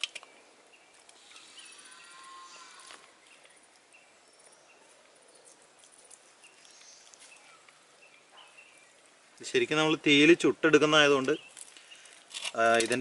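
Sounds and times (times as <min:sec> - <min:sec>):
faint high bird chirps: 0:01.2 - 0:09.0.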